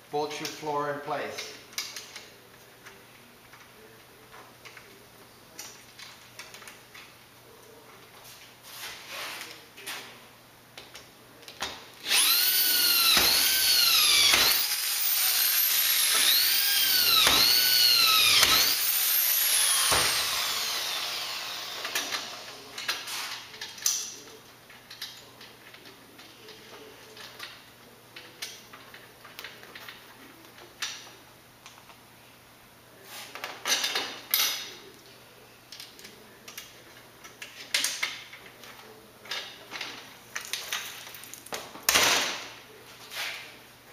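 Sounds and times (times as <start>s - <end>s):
power drill whining: 12.0s - 22.5s.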